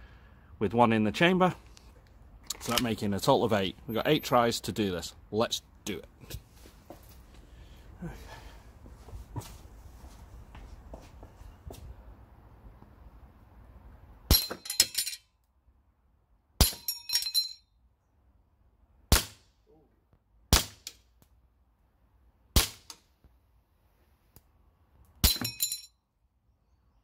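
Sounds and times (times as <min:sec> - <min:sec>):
pellets hitting metal target: 0:14.3 - 0:15.1, 0:25.2 - 0:25.9
airsoft pistol shots: 0:19.1 - 0:19.5, 0:20.5 - 0:20.9, 0:22.5 - 0:23.0.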